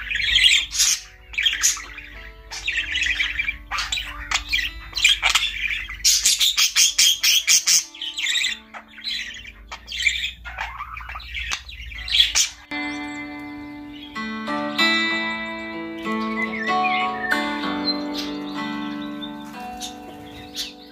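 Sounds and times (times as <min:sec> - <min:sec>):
budgerigar chattering and squawking: 0:00.0 - 0:13.2, 0:17.9 - 0:20.9
soft background music: 0:00.0 - 0:20.9.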